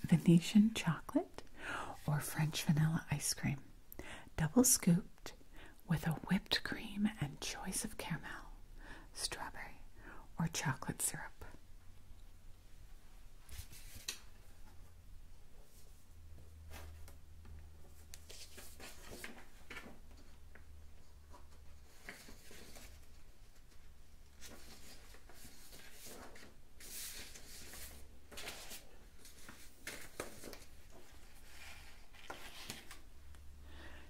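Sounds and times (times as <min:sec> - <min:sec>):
paper rustling and scratching: 0:17.8 - 0:33.1.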